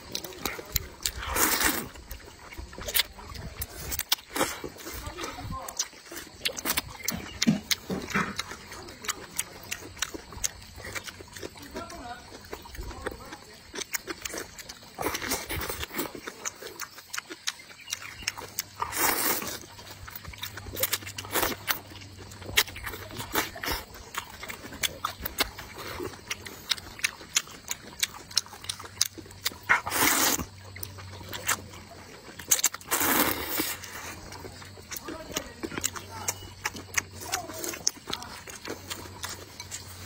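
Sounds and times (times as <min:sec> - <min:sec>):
wet smacking chews: 0:00.0 - 0:40.0
person slurping noodles: 0:01.0 - 0:02.0, 0:18.8 - 0:19.6, 0:29.6 - 0:30.5, 0:32.5 - 0:34.2.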